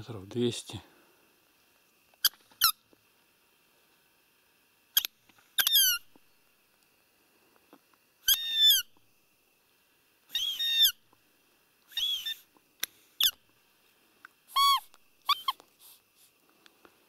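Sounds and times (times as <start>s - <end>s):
high-pitched deer call squeaks: 2.2s - 2.8s, 5.0s - 6.1s, 8.2s - 8.9s, 10.3s - 11.0s, 11.9s - 12.5s, 14.5s - 15.6s.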